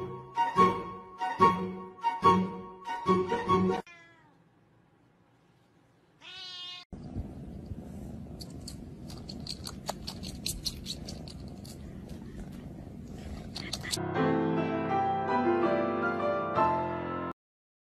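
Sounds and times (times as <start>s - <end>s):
kitten meowing: 6.2s - 6.8s
cat purring: 7.2s - 14.0s.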